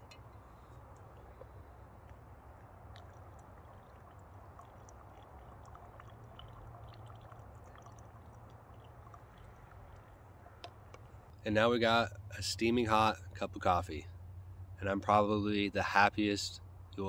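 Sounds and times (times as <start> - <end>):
coffee trickling into mug: 2.9 - 10.8.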